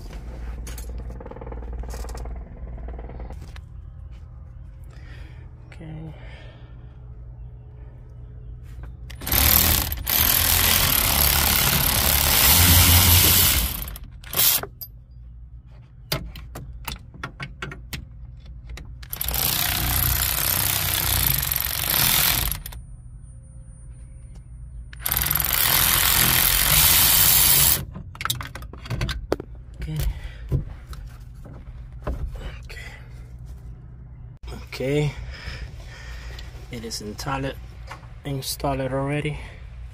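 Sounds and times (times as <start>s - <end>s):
rapid wrench ratcheting: 9.1s - 14.7s, 19.0s - 22.8s, 25.0s - 27.8s
wrench clicks: 9.1s - 14.8s, 18.7s - 22.8s, 24.9s - 28.6s.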